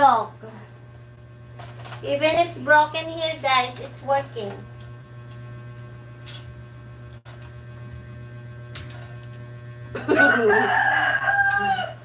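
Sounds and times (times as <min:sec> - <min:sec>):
low electrical hum: 0:00.0 - 0:12.0
rooster crowing: 0:10.0 - 0:12.0.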